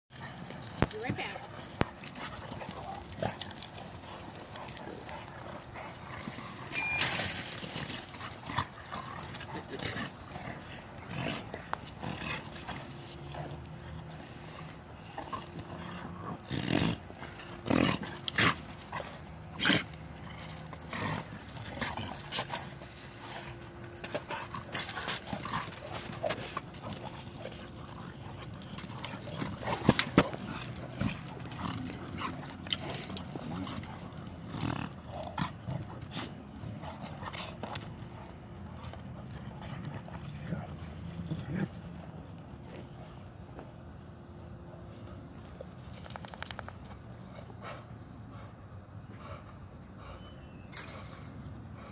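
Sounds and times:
dogs scuffling on mulch: 0:17.7 - 0:43.4.

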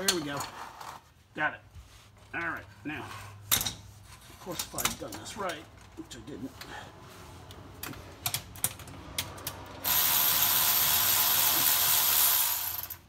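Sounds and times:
ratchet wrench clicking: 0:08.3 - 0:13.0.

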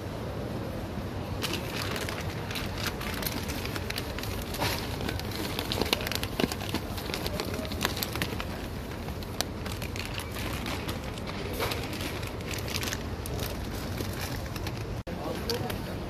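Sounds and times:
low background noise: 0:00.0 - 0:16.0
plastic bag crinkling: 0:01.4 - 0:15.6.

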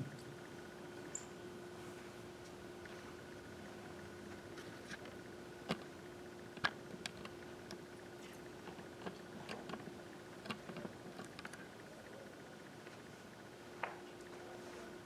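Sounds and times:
faint hum: 0:00.0 - 0:15.0.

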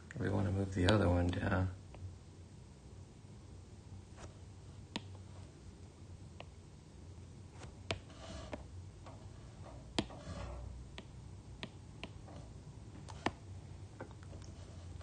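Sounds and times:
faint brushing on screen: 0:04.1 - 0:04.4, 0:07.5 - 0:10.8, 0:14.4 - 0:15.0
stylus tapping on glass screen: 0:10.9 - 0:12.2.

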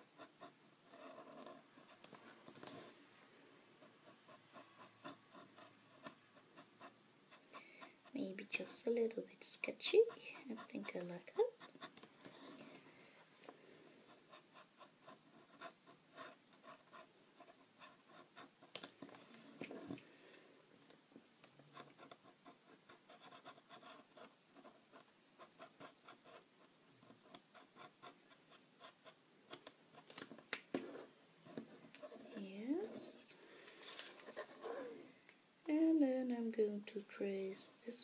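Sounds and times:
marker scratching on card: 0:09.9 - 0:12.6, 0:14.1 - 0:18.7, 0:21.7 - 0:30.1.

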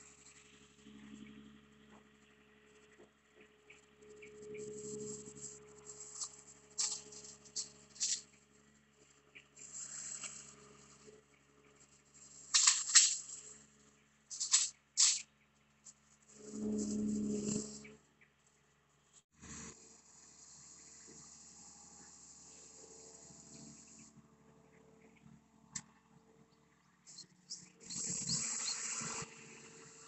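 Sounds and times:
excavator engine humming: 0:00.0 - 0:18.3
rebar rattling and scraping: 0:04.8 - 0:08.3, 0:12.2 - 0:13.6, 0:14.3 - 0:15.2.

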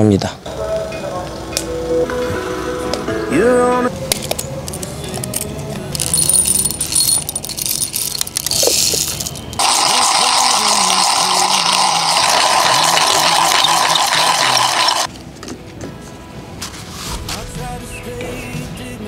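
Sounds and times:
music playing: 0:00.5 - 0:19.0
running water rushing: 0:09.6 - 0:15.1.

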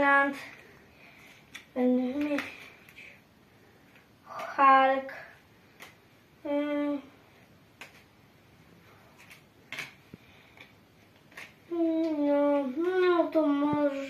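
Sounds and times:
trading cards clicking and tapping: 0:09.2 - 0:12.1.

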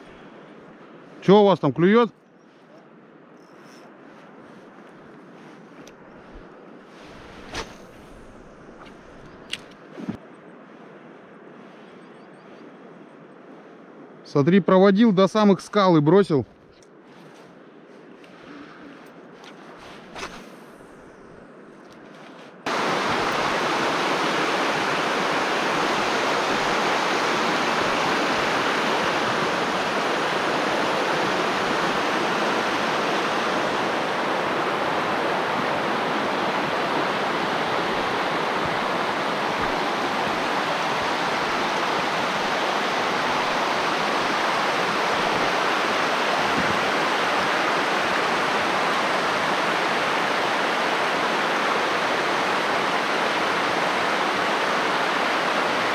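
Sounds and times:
river flowing over stones: 0:22.7 - 0:55.9.

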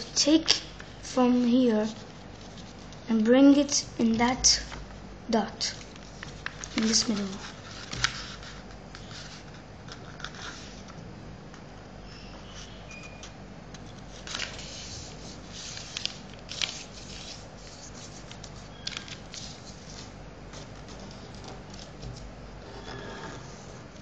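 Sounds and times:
paper rustling and crinkling: 0:05.6 - 0:11.0, 0:13.8 - 0:24.0.

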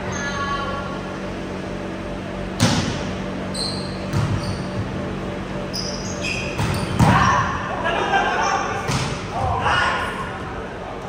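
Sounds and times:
sneakers squeaking on court: 0:03.5 - 0:05.0, 0:05.6 - 0:07.2
volleyball impact echoing: 0:08.8 - 0:09.6.

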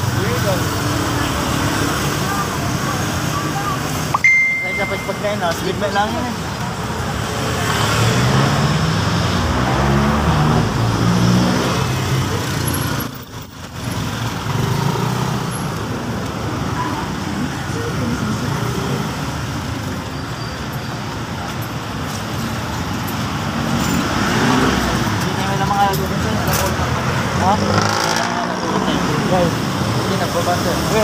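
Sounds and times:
street traffic: 0:00.0 - 0:31.0.

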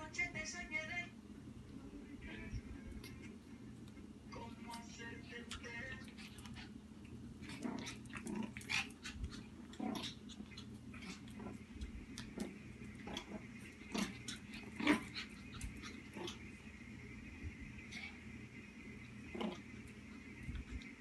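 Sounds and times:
dog play growling: 0:02.9 - 0:21.0.

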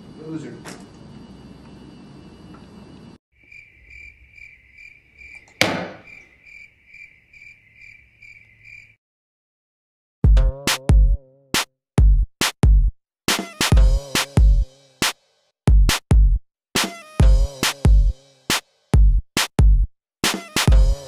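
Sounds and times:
crickets chirping: 0:00.0 - 0:09.0
gunshot: 0:05.6 - 0:06.0
music with drum-machine beats: 0:10.3 - 0:21.0.

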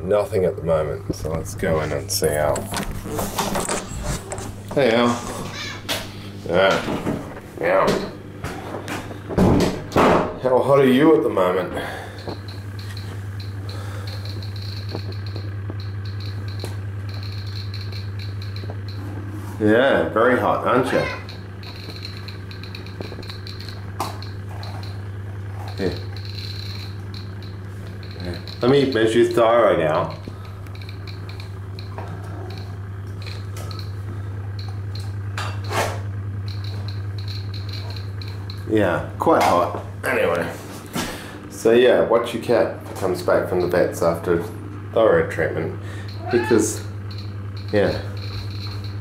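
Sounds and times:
steady low hum: 0:00.0 - 0:49.0
geiger counter clicking rapidly: 0:12.2 - 0:19.0, 0:20.4 - 0:25.1, 0:25.7 - 0:35.2, 0:36.4 - 0:39.6, 0:43.3 - 0:44.0, 0:45.4 - 0:49.0.

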